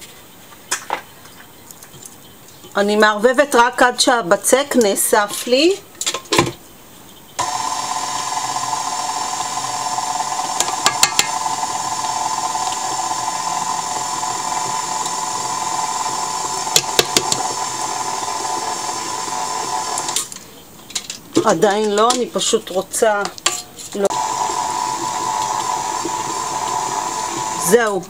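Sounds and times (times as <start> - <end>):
stand mixer running: 7.4 - 20.4, 24.1 - 27.8.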